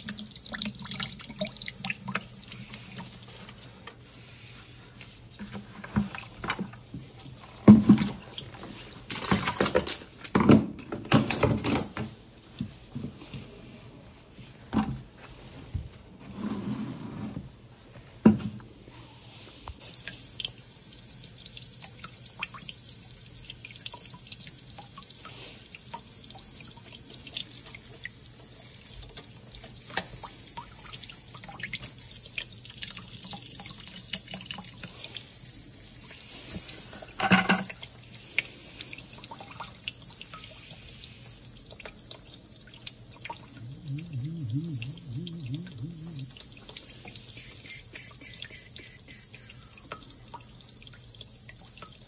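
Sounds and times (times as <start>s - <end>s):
water hissing into plastic bucket: 19.8s - 52.0s.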